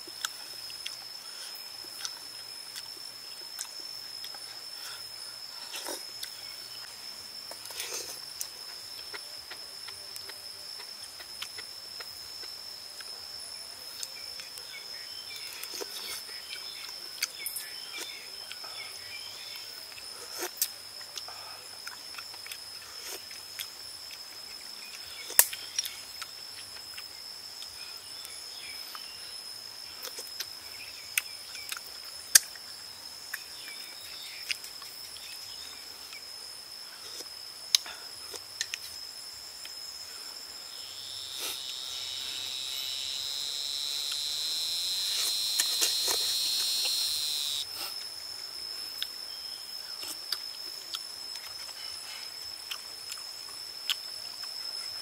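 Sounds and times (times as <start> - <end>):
high-pitched insect drone: 0.0 - 55.0
loud insect buzz: 39.0 - 48.0.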